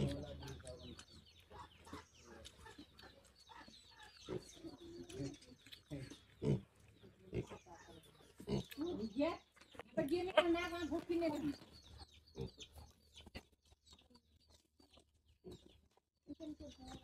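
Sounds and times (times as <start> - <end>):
pig grunting: 0.0 - 2.4
small birds chirping: 0.0 - 17.0.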